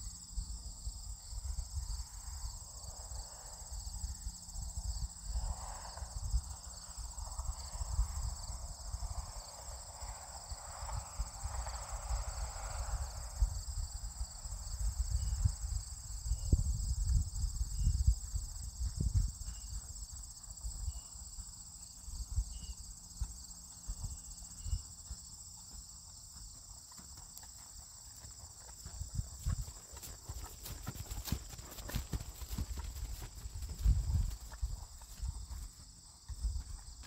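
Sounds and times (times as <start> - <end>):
horse hooves thudding on grass: 17.8 - 21.6, 23.1 - 37.0.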